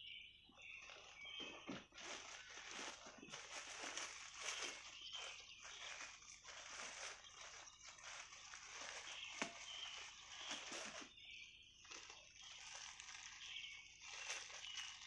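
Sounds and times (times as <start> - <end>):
small rustles and clicks: 0.7 - 11.1.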